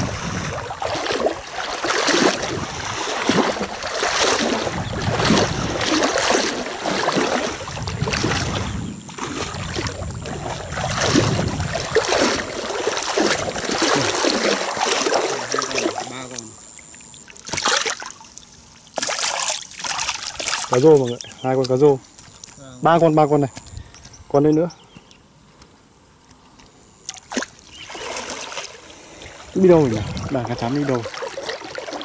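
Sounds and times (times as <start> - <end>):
water sloshing and splashing: 0.0 - 22.8, 27.0 - 32.0
faint high whine: 8.5 - 32.0.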